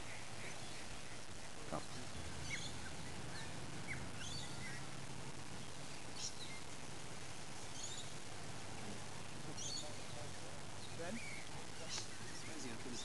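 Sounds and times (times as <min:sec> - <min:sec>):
high bird chirps: 0:00.0 - 0:04.9, 0:05.6 - 0:06.8, 0:09.6 - 0:13.0
outdoor background hiss: 0:00.0 - 0:13.0.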